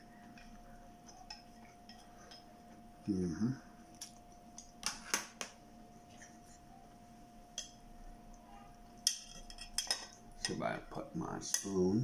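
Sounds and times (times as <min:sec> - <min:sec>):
utensils clinking on ceramic bowls: 0:09.0 - 0:10.8.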